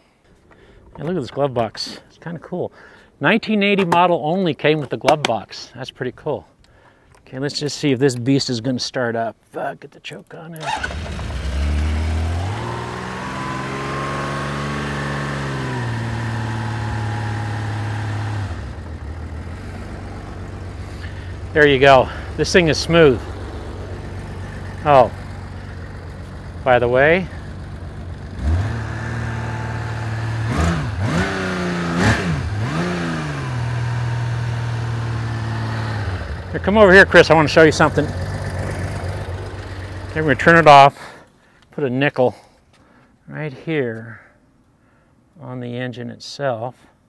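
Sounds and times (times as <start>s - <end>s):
motorcycle engine idling: 10.9s - 30.5s, 33.6s - 40.7s.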